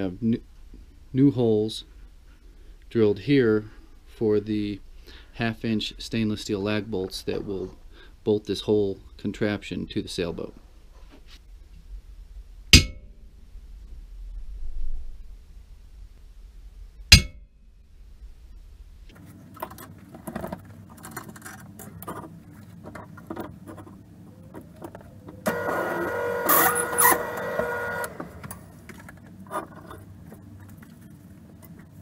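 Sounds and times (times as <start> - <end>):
sharp metal clack: 12.8 - 13.1, 17.1 - 17.4.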